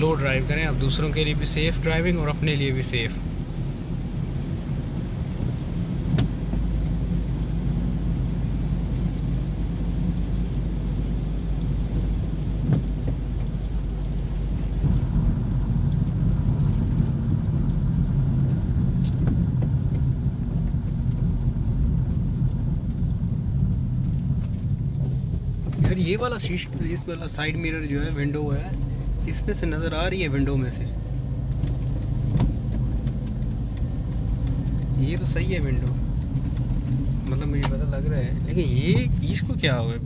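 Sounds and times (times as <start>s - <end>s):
car engine and tyres on wet road: 0.0s - 40.0s.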